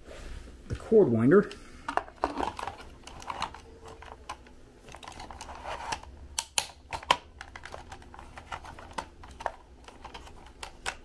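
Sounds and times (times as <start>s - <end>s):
plastic parts clicking: 1.9s - 11.0s.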